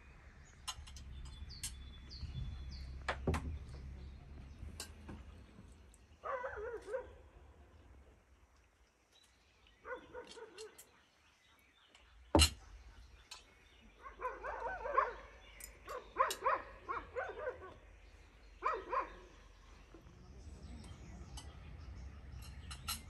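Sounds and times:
dog yipping and barking: 0:06.2 - 0:07.1, 0:09.9 - 0:10.8, 0:14.0 - 0:15.3, 0:15.9 - 0:17.8, 0:18.6 - 0:19.2.

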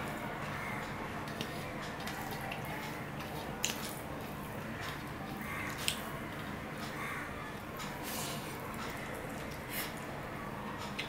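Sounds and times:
fingers mixing food on steel plate: 0:00.4 - 0:07.0.

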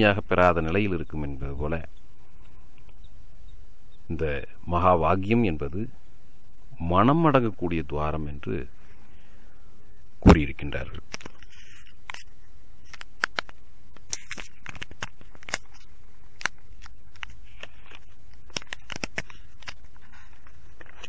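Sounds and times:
recording hiss: 0:00.0 - 0:21.0
clicks and crackles: 0:10.9 - 0:21.0.

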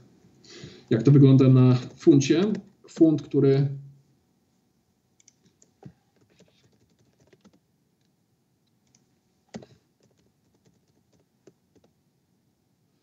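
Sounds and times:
keyboard typing: 0:05.2 - 0:07.6, 0:08.8 - 0:12.0.

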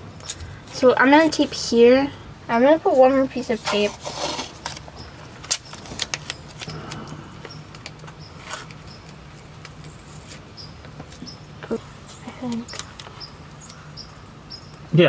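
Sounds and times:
low steady hum: 0:00.0 - 0:15.0
tape crackling: 0:02.9 - 0:14.0.

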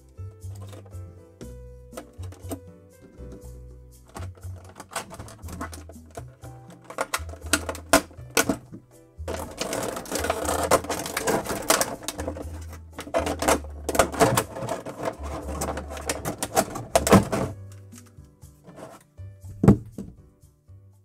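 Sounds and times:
background music: 0:00.0 - 0:21.0
plastic blister tray crinkling: 0:04.1 - 0:18.1.

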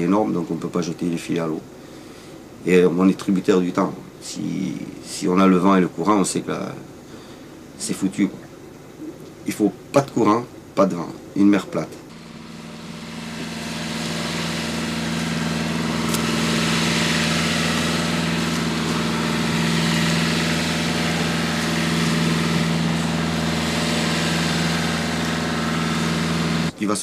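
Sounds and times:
boat engine running: 0:12.1 - 0:26.8.

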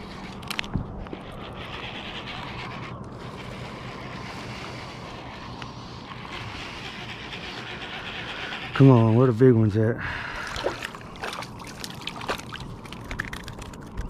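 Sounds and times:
wind buffeting microphone: 0:00.0 - 0:05.5
small waves lapping: 0:10.1 - 0:13.9.

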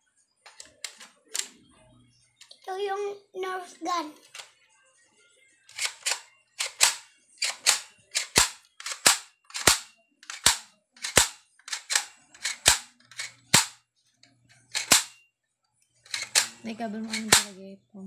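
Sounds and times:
toy air gun clicks: 0:05.7 - 0:13.8, 0:14.7 - 0:15.1, 0:16.1 - 0:17.5.

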